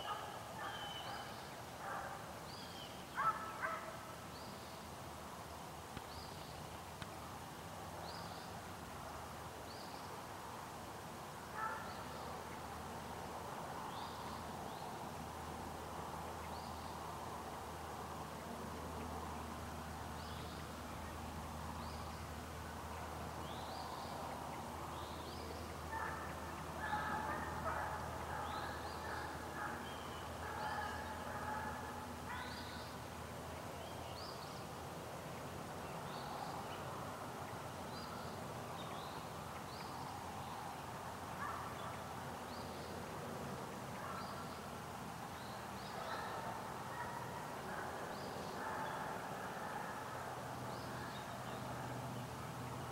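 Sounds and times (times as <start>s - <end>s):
distant hounds baying: 0.0s - 2.2s, 3.2s - 4.0s, 11.6s - 12.0s, 25.9s - 32.7s, 45.9s - 50.2s.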